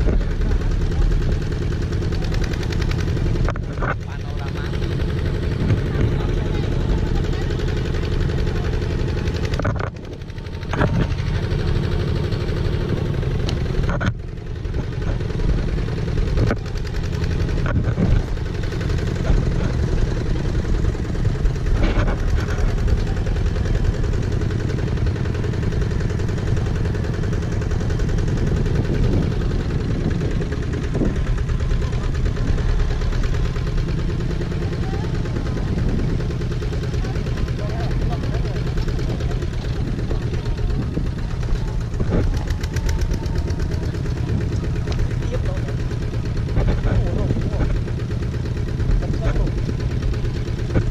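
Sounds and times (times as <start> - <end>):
tractor engine running: 0.0 - 50.9.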